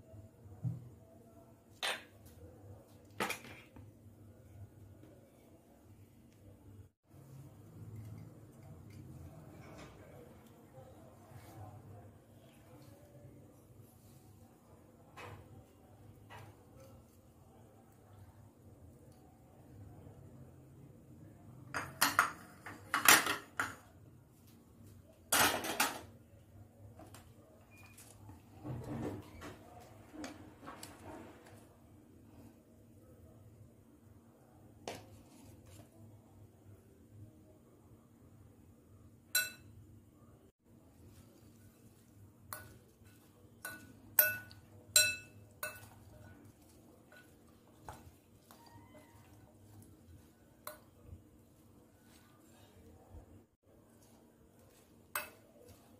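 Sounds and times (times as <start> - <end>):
utensils and dishes clattering: 25.3 - 26.1
spoon clinking against glass bowl: 39.4 - 39.7, 42.5 - 51.0.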